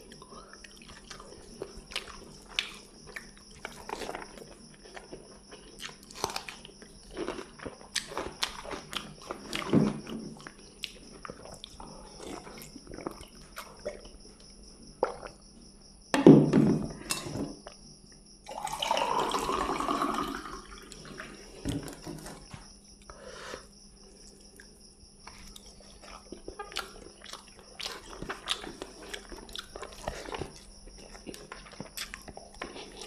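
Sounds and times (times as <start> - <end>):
knock on table: 16.1 - 16.9
water poured into glass: 18.5 - 20.9
eating clicks and smacks: 25.3 - 33.0.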